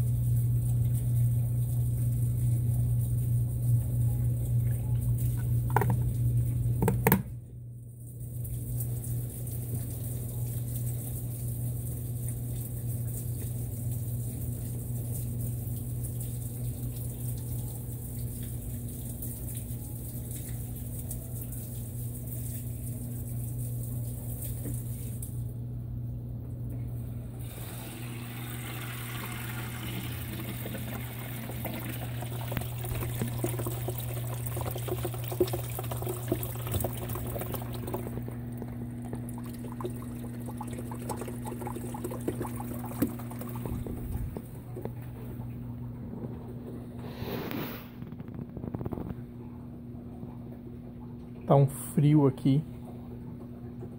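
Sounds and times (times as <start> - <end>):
drain pump humming: 0.0 - 47.2
water pouring: 27.4 - 45.6.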